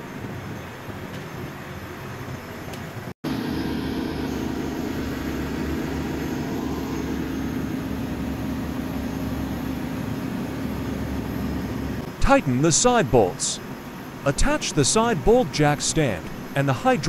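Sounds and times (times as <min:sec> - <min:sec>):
machinery drone: 0:03.2 - 0:17.0
low hum: 0:03.3 - 0:16.8.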